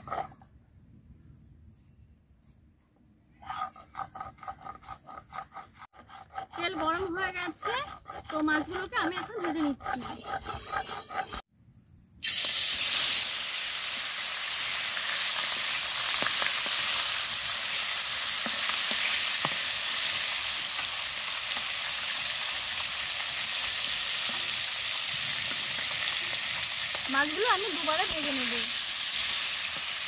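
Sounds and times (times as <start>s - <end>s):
fish sizzling in hot oil: 12.2s - 30.0s.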